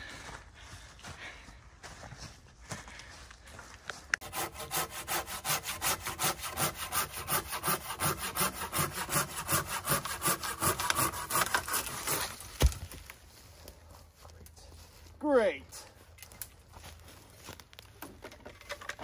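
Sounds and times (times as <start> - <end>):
pruning saw cutting branch: 4.2 - 12.8
branch cracking: 11.5 - 13.2.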